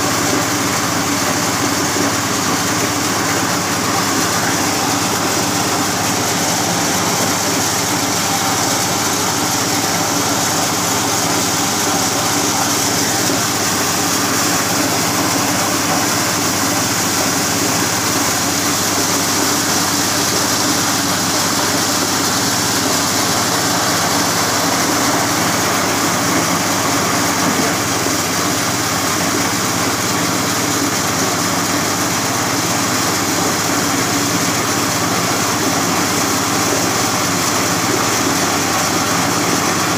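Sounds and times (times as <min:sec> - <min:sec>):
corn sheller engine running: 0:00.0 - 0:39.9.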